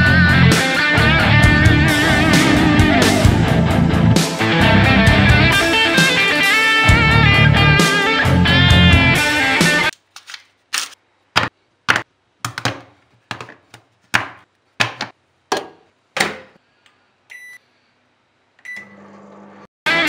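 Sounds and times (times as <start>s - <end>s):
microwave keypad beeps: 17.3s - 17.6s, 18.6s - 19.1s
microwave oven humming: 18.6s - 19.7s.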